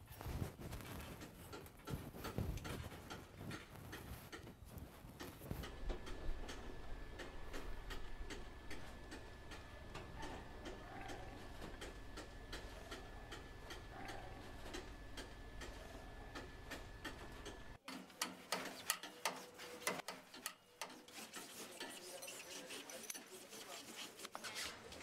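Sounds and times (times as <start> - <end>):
low steady hum: 0.2 - 17.8
light regular ticking: 1.1 - 17.8.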